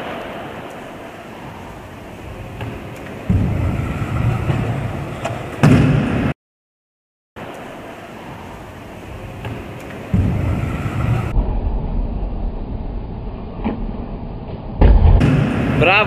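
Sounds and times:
scooter landing slam: 2.6s - 6.3s.

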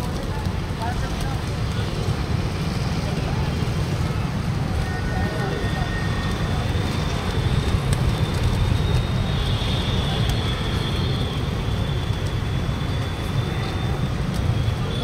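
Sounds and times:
pigeon wings flapping: 0.0s - 2.6s, 5.6s - 15.0s
city traffic rumble: 0.0s - 15.0s.

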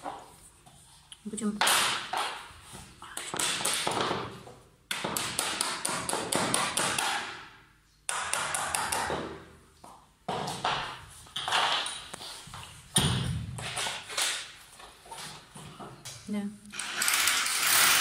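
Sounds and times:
hammer striking a nail: 4.9s - 7.5s, 8.1s - 9.4s.

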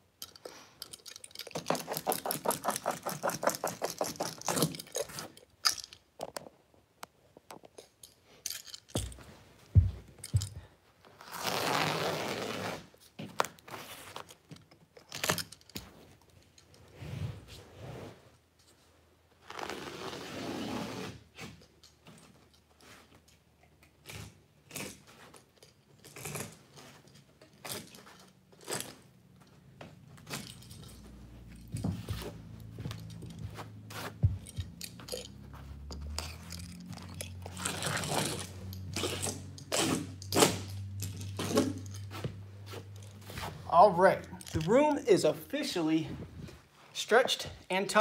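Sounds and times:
carpet strip tearing: 24.0s - 25.2s, 37.5s - 40.6s
utility knife cutting carpet: 36.2s - 40.6s.

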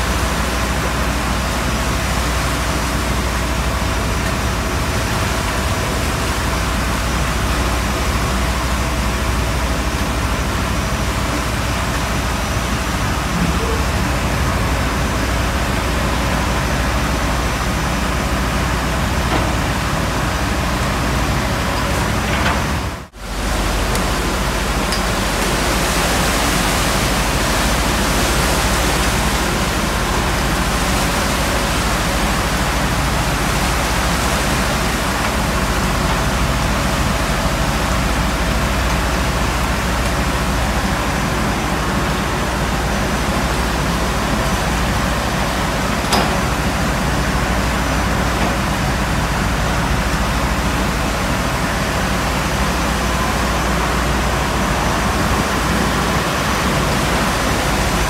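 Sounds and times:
seawater rushing across steel deck: 0.0s - 58.0s.

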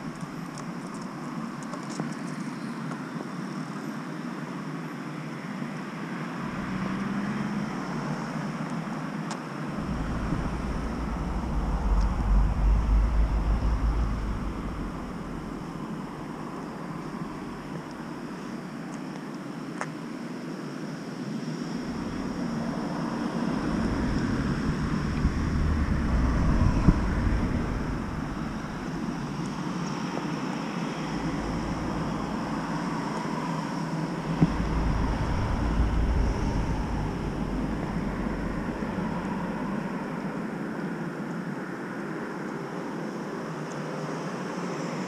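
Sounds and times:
hiss of travel on pavement: 5.4s - 45.0s
wind buffeting microphone: 9.8s - 18.4s, 21.7s - 40.6s.

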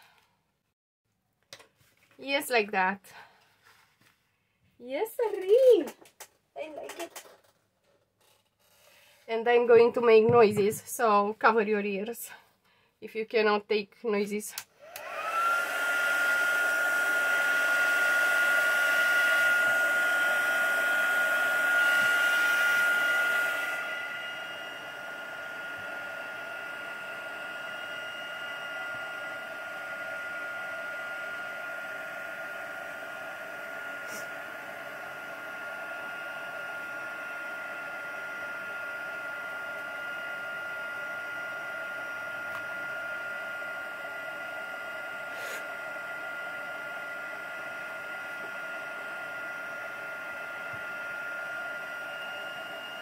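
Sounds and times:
hot-air dryer motor whine: 9.0s - 12.4s, 14.6s - 53.0s.

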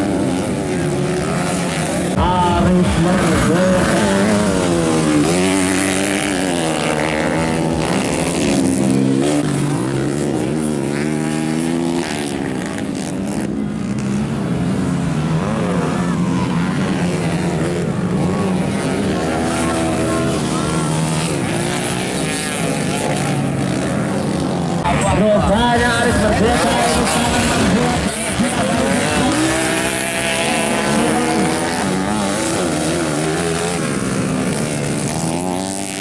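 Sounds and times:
dirt bike engines revving: 0.0s - 36.0s.

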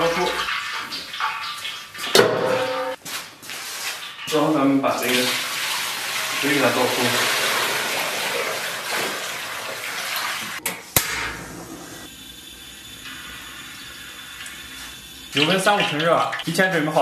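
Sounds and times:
gas stove hiss: 12.1s - 16.0s.

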